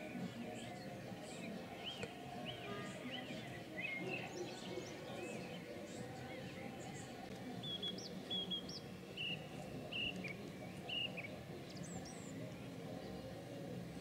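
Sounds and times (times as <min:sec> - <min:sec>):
low background noise: 0:00.0 - 0:14.0
bird chirping: 0:00.1 - 0:12.7.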